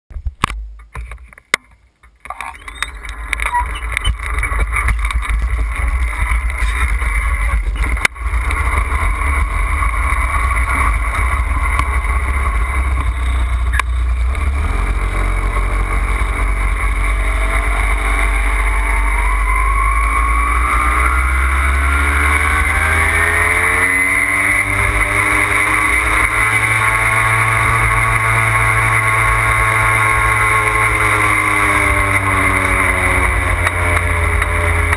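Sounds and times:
wind rumbling on microphone: 0.1 - 25.6
moped engine running: 2.3 - 34.9.

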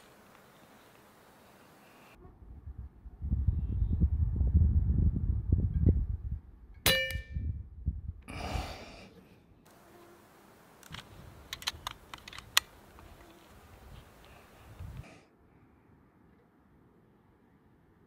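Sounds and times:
rifle action clicks: 10.8 - 13.1.

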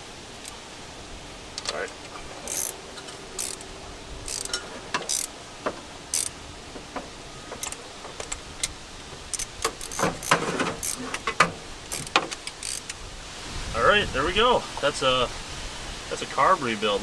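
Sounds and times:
hand ratchet clicking: 2.4 - 2.8, 3.4 - 3.7, 4.3 - 5.3, 6.1 - 6.4, 7.6 - 8.4, 9.3 - 13.0.

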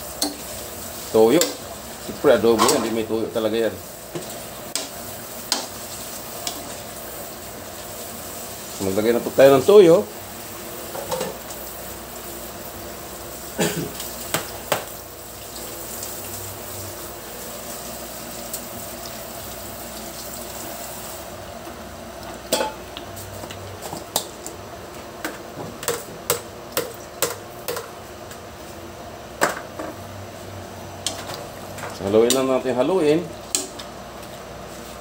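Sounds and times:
gas burner hissing: 0.0 - 22.0.

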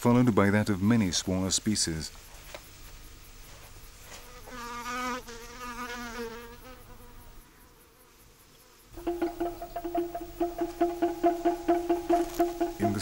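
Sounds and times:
flying insect buzzing: 3.5 - 13.0.

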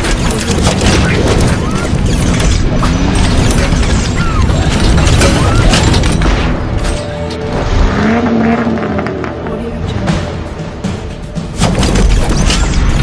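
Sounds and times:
music: 0.0 - 13.0
sports car engine revving: 7.8 - 9.5.

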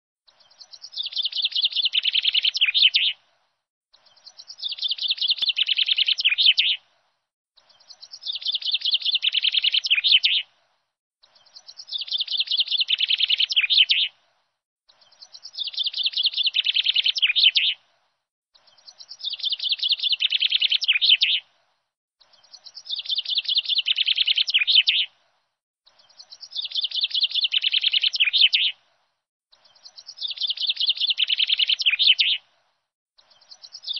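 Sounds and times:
songbird trilling: 0.5 - 3.2, 7.8 - 10.4, 11.4 - 14.1, 15.0 - 17.8, 18.7 - 21.4, 22.4 - 25.1, 26.1 - 28.8, 29.7 - 32.4.

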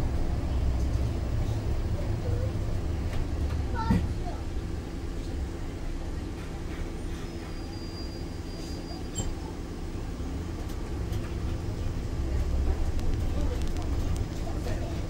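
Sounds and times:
road noise: 0.0 - 6.5
bus engine hum: 0.0 - 15.0.

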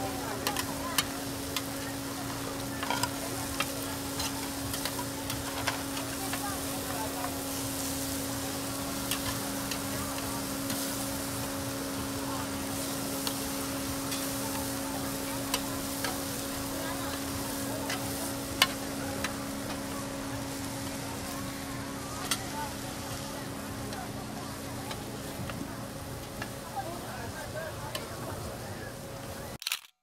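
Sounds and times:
food sizzling on a griddle: 0.0 - 29.5
metal spatulas scraping a pan: 2.8 - 6.2.

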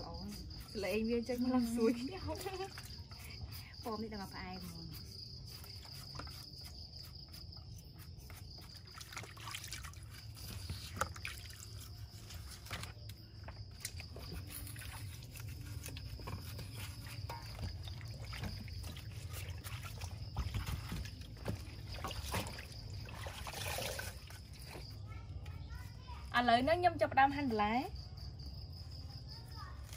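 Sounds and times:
knife peeling fruit: 0.0 - 9.0, 10.2 - 21.4
crickets trilling: 0.0 - 29.9
water trickling and sloshing: 8.2 - 26.3.

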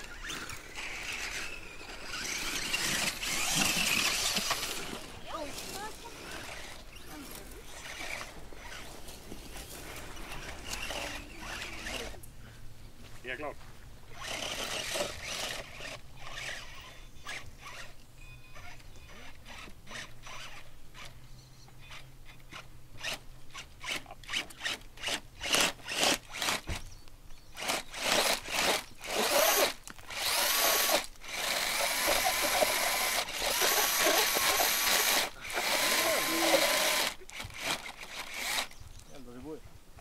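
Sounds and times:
buggy engine revving: 0.0 - 8.9, 28.2 - 38.6.

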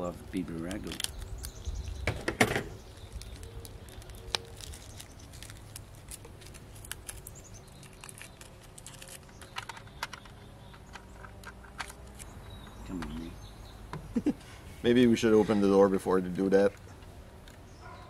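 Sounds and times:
birds chirping faintly: 0.0 - 18.0.

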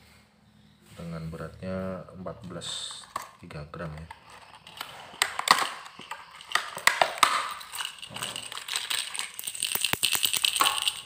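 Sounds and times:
plastic pack crackling and clicking: 2.7 - 11.0.

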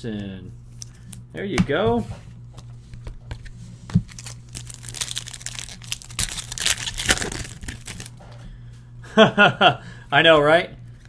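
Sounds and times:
foil wrapper crinkling: 4.0 - 8.2.

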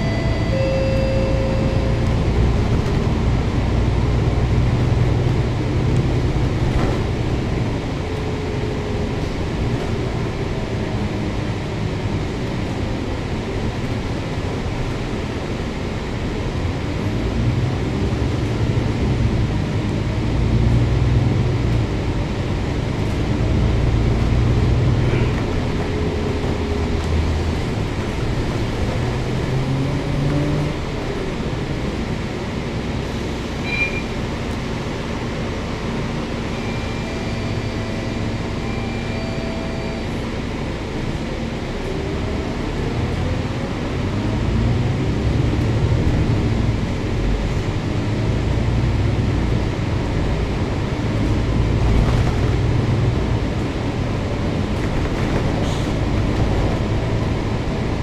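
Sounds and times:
faint high tones: 0.0 - 2.3
bus diesel engine drone: 0.0 - 58.0.

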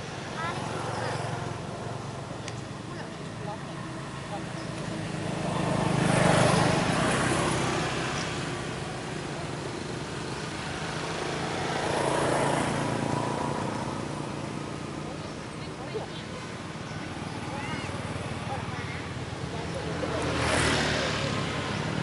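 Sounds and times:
road vehicles passing by: 0.0 - 22.0.

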